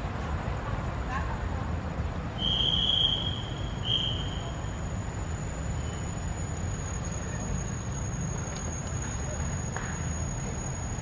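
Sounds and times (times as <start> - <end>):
high-pitched insect drone: 2.4 - 11.0.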